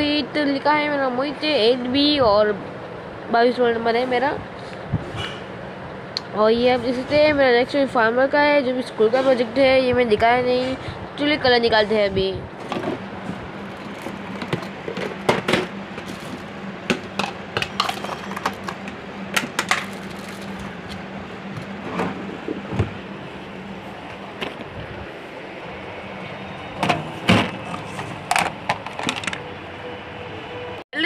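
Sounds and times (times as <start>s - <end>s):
plastic boxes knocking and rattling: 13.9s - 20.4s.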